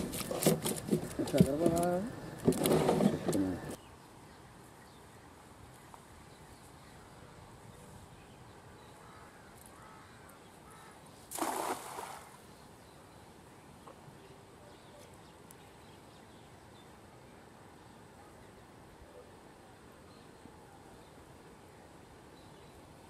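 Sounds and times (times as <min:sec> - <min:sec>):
faint outdoor background: 0:00.0 - 0:23.0
cast net splashing on water: 0:11.3 - 0:12.4.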